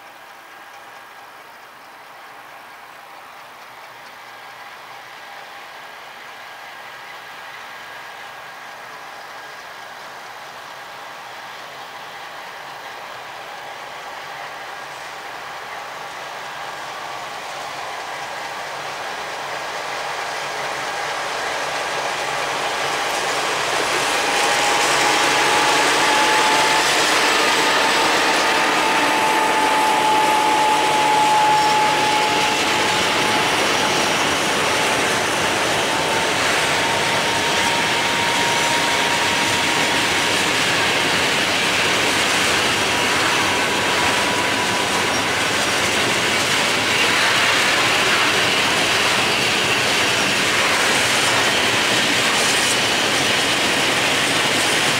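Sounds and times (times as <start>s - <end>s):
freight train wheels clanking: 7.0s - 54.9s
high wheel squeal: 20.7s - 54.9s.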